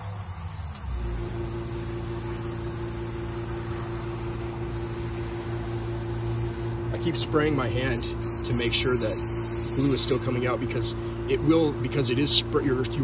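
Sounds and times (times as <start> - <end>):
airbrush spraying hiss: 0.0 - 6.8, 7.9 - 10.4
air compressor humming: 0.0 - 13.0.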